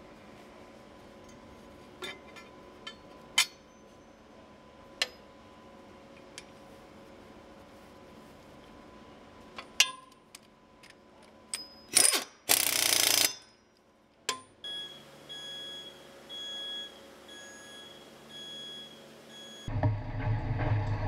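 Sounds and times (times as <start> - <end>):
warning beep: 14.7 - 19.7
low machine hum: 14.8 - 21.0.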